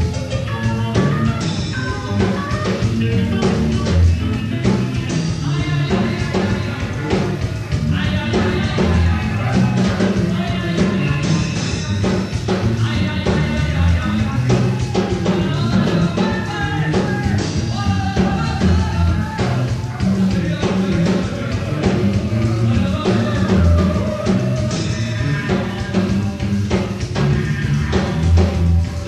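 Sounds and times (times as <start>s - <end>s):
person singing: 0.0s - 29.0s
rock band playing live: 0.0s - 29.0s.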